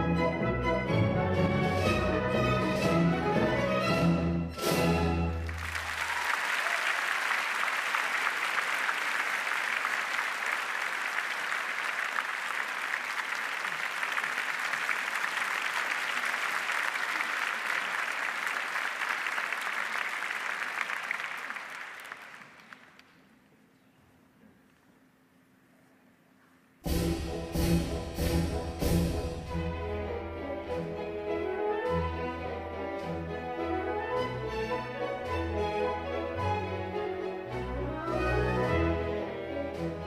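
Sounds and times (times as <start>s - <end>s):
audience applauding: 5.3s - 23.3s.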